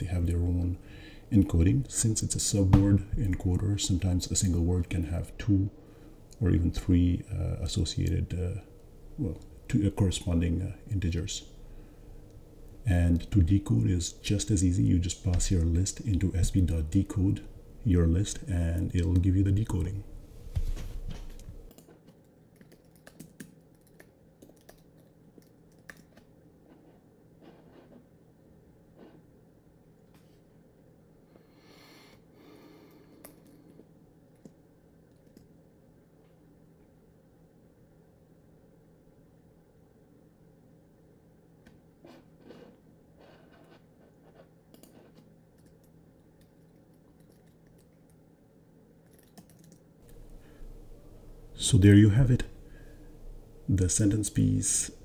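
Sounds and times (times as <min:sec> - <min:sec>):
keyboard typing: 0:21.7 - 0:26.2, 0:49.1 - 0:49.8.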